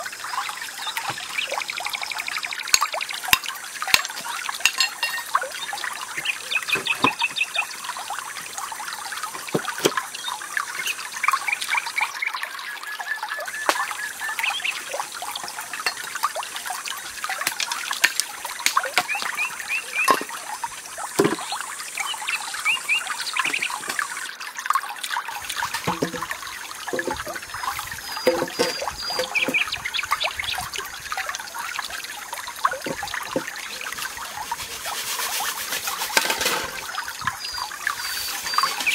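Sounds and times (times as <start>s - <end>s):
water trickling: 0.0s - 38.9s
birds chirping: 4.2s - 7.7s, 18.8s - 20.5s, 21.2s - 24.2s, 25.6s - 30.7s
knocks of bamboo poles: 21.2s - 21.5s, 25.6s - 26.3s, 26.9s - 27.4s, 28.2s - 29.7s.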